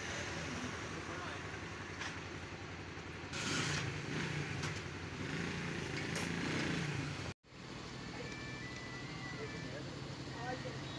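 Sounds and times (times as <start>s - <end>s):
outdoor noise: 0.0s - 10.9s.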